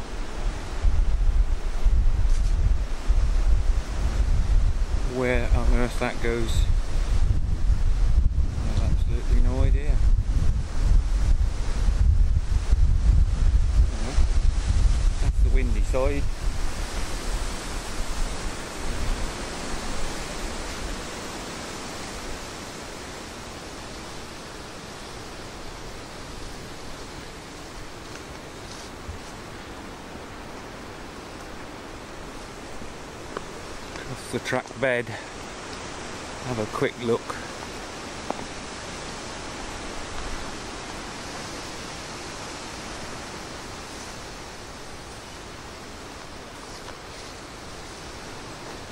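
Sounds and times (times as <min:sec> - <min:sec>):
wind on microphone: 0:00.0 - 0:48.9.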